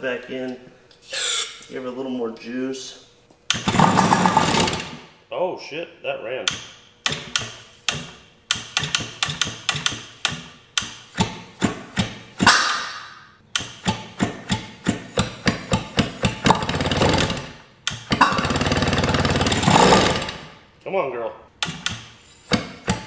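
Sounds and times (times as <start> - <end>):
electric starter cranking: 3.5 - 5.1, 13.5 - 20.6
engine firing in loud pops: 3.6 - 5.0, 12.4 - 18.7
two-stroke engine running roughly: 3.7 - 4.8, 16.2 - 17.5, 18.2 - 20.4.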